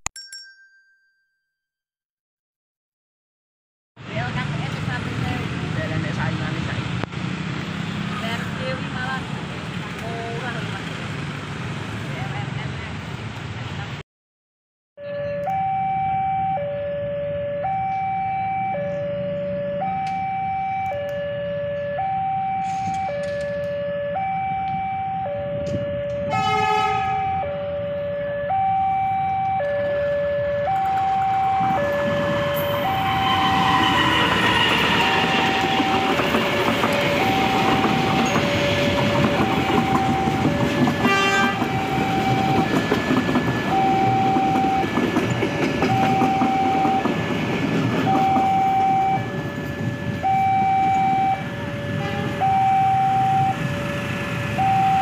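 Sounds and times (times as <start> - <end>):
train engine and wheel noise: 4.0 - 14.0, 15.0 - 55.0
two-tone level crossing alarm: 15.0 - 55.0
train horn blast: 26.3 - 27.4, 32.5 - 35.8, 40.8 - 42.5, 51.9 - 52.5.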